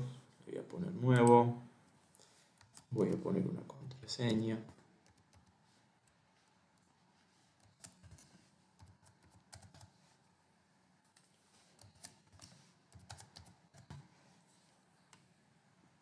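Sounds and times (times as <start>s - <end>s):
keyboard typing: 4.3s - 6.2s, 7.6s - 10.0s, 11.8s - 14.1s.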